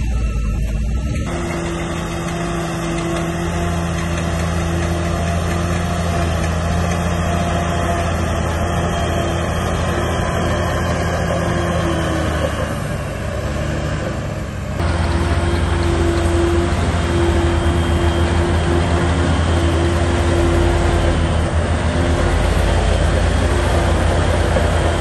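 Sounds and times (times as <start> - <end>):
mechanical noise: 0.0 - 14.1
heavy diesel engine under load: 0.0 - 25.0.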